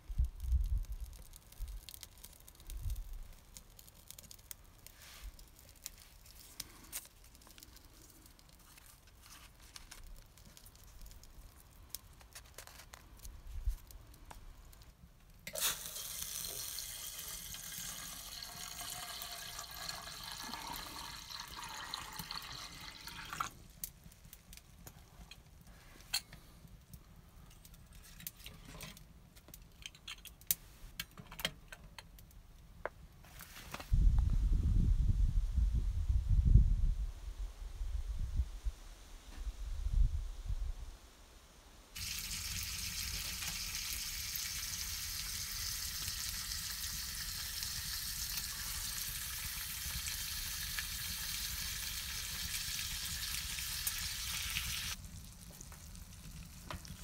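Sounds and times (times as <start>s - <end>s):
water pouring into metal kettle: 15.5s - 23.5s, 42.0s - 55.0s.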